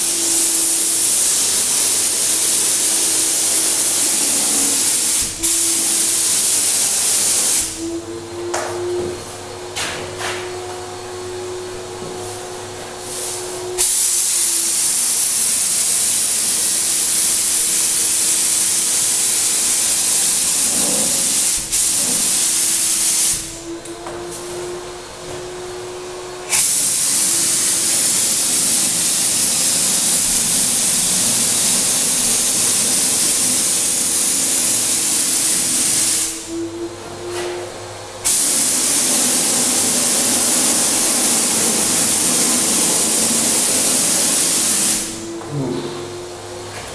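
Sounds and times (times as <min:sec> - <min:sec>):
turbine whine: 0:00.0 - 0:06.4, 0:07.6 - 0:13.9, 0:23.4 - 0:46.8
spray gun hissing: 0:00.0 - 0:07.8, 0:13.0 - 0:23.5, 0:26.5 - 0:36.5, 0:38.2 - 0:45.3.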